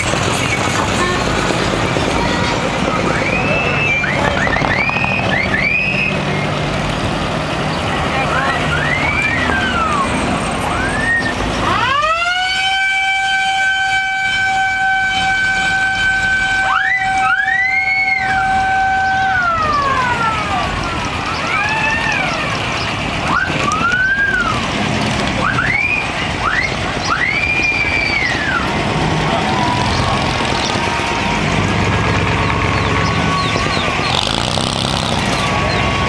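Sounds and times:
siren winding up and down: 0:03.0 - 0:06.2, 0:23.2 - 0:28.7, 0:29.3 - 0:36.0
whistle-like chirps: 0:03.1 - 0:06.6.

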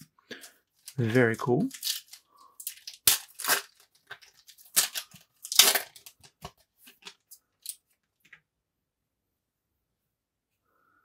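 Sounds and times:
cards crinkling and clicking: 0:00.3 - 0:08.4
foil wrapper ripping: 0:01.7 - 0:07.8.

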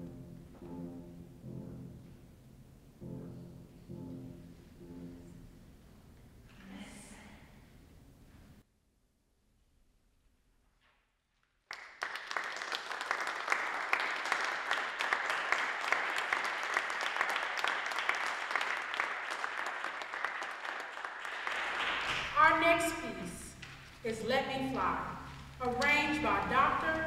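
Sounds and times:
small audience applauding: 0:11.6 - 0:22.6.

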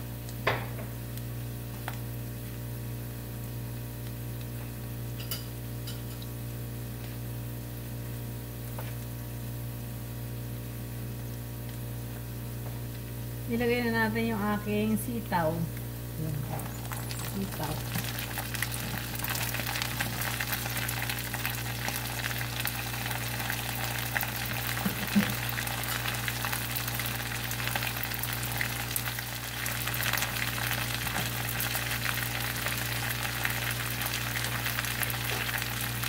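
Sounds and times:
steady low hum: 0:00.0 - 0:36.0
beans sizzling in hot oil: 0:15.8 - 0:36.0.

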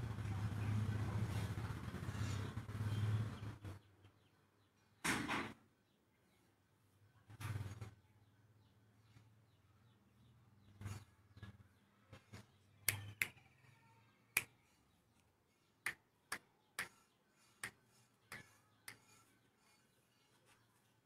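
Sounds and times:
sharp short clicks: 0:12.9 - 0:13.4.

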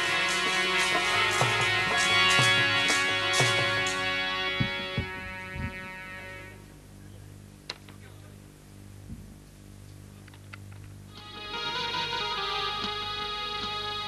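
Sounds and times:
sustained music: 0:00.0 - 0:06.7, 0:11.1 - 0:14.0
low electrical hum: 0:00.0 - 0:14.0
faint clicks and knocks: 0:09.8 - 0:11.0.

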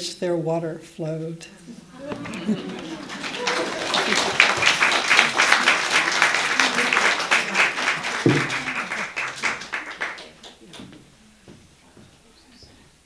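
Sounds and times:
audience applauding: 0:01.9 - 0:11.0.

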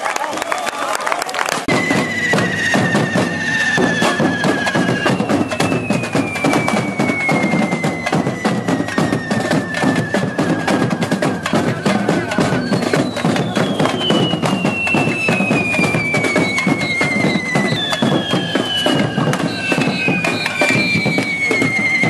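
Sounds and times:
drums beating: 0:01.5 - 0:22.0
shrill falling whistle: 0:01.7 - 0:22.0
fireworks hissing and crackling: 0:11.6 - 0:22.0.

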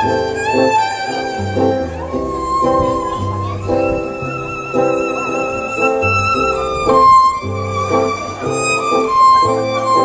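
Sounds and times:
fiddle melody with vibrato: 0:00.0 - 0:10.0
upright bass notes: 0:01.3 - 0:08.7.

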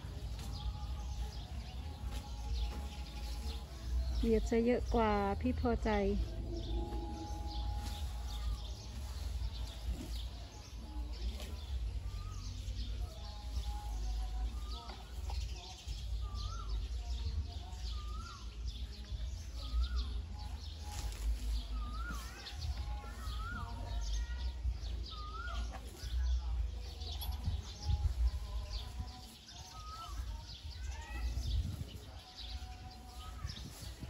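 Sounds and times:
steady low rumble: 0:00.0 - 0:10.4.

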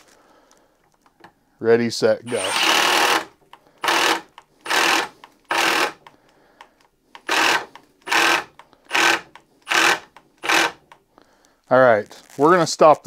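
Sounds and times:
impact driver boring into wood: 0:02.3 - 0:06.2, 0:07.2 - 0:11.0.

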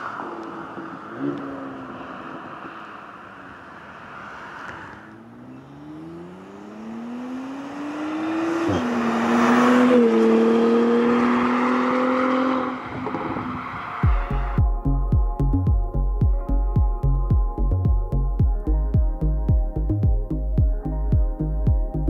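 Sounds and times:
car exhaust accelerating past: 0:00.0 - 0:15.5
electronic music: 0:14.0 - 0:22.0.

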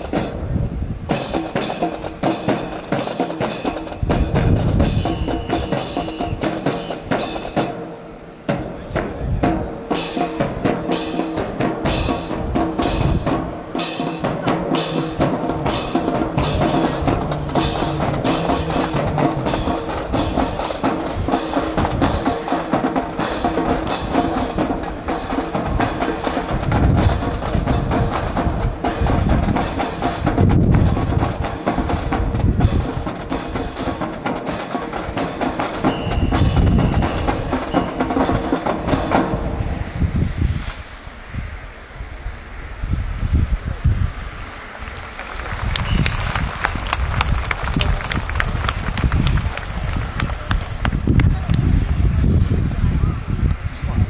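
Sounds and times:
heavy bass drum beats: 0:00.0 - 0:07.8, 0:08.5 - 0:39.8
marching snare drum cadence: 0:00.0 - 0:39.8.

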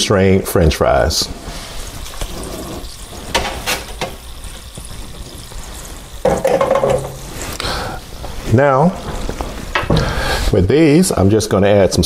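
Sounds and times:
oil sizzling in a deep fryer: 0:01.4 - 0:10.4.

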